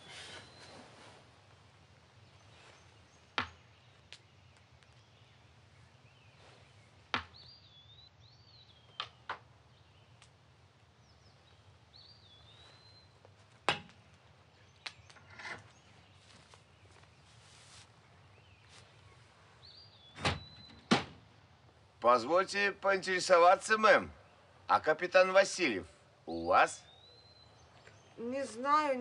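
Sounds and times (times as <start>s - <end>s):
high bird chirps: 19.6s - 20.9s.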